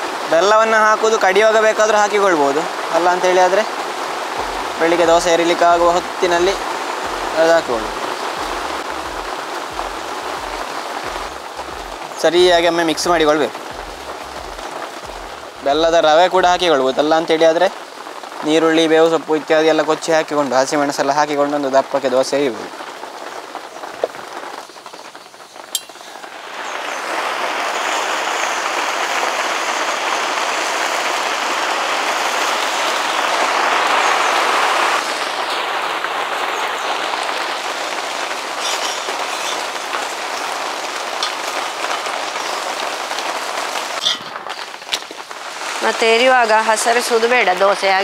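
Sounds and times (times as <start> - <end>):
batter sizzling on hot griddle: 22.8 - 34.4, 35.0 - 46.5.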